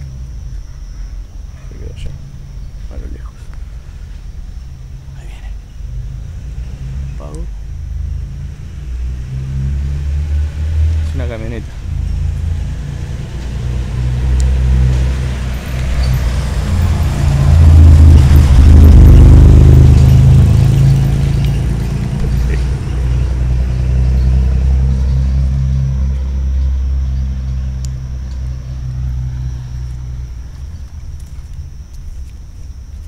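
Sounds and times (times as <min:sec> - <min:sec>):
pickup truck driving past: 0:08.0 - 0:30.5.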